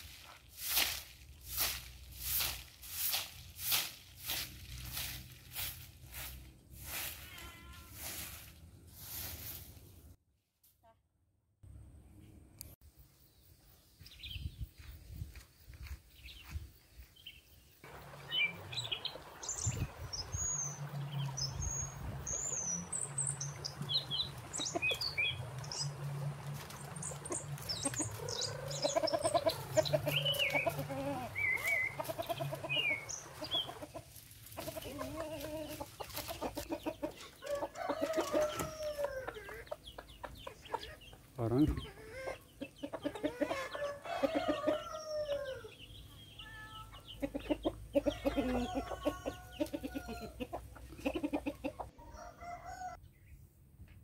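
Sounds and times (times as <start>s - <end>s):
small birds chirping: 13.2s - 52.3s
chickens clucking: 17.9s - 53.0s.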